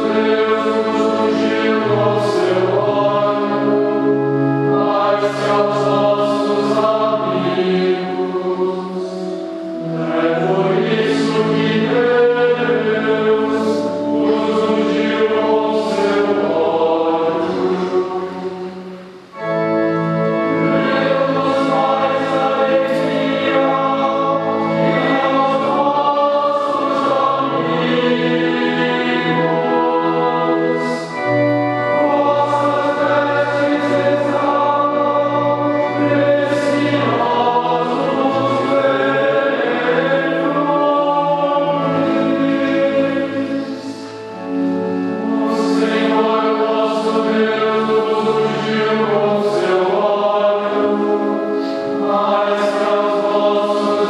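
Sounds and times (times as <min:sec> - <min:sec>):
choir singing: 0:00.0 - 0:54.0.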